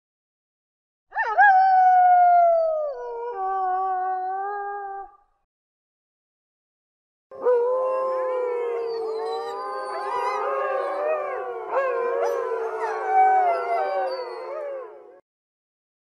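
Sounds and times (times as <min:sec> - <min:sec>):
wolves howling in chorus: 0:07.4 - 0:15.2.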